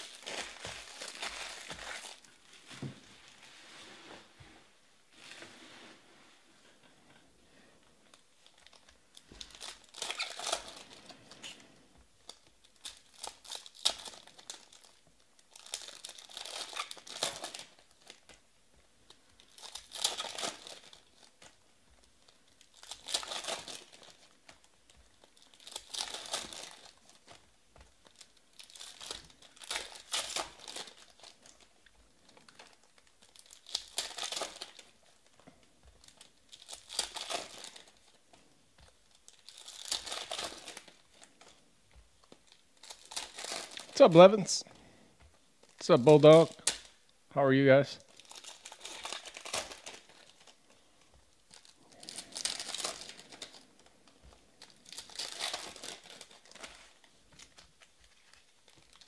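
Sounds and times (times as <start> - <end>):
foil packs tearing and crinkling: 0.0 - 2.3, 8.5 - 18.4, 19.4 - 21.6, 22.2 - 35.3, 36.0 - 38.3, 38.9 - 41.6, 42.2 - 44.4, 48.1 - 50.6, 51.4 - 54.0, 54.6 - 59.0.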